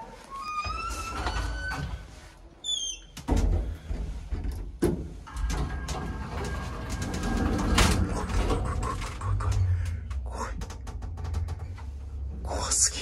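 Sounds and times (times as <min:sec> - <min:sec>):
lift low rumble: 0:05.4 - 0:13.0.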